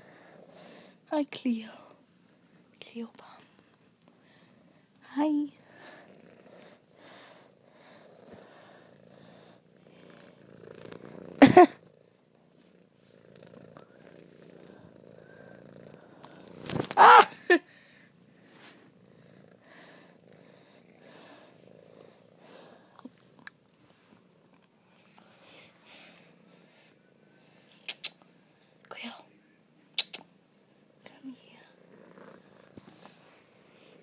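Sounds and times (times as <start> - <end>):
cat purring: 0.0 - 2.6, 4.6 - 16.8, 17.8 - 25.5, 30.8 - 34.0.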